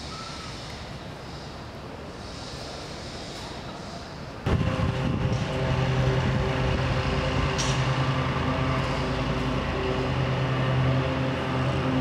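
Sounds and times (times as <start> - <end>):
low droning hum: 4.4 - 11.3.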